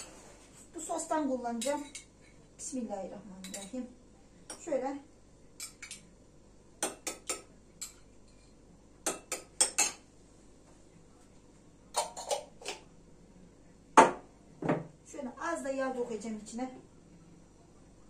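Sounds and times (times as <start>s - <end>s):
spoon clinking on jar and bowl: 5.6s - 6.0s.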